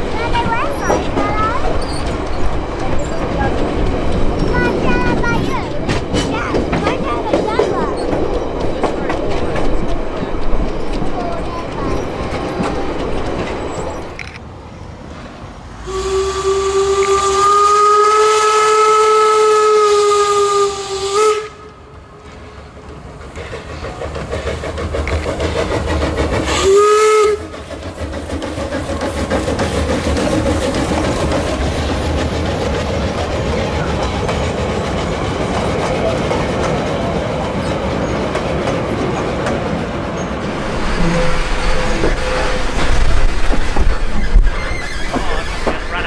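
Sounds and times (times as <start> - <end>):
train rumbling past: 0.0 - 46.0
steam locomotive whistle: 15.8 - 21.9, 26.5 - 27.6, 40.7 - 43.1.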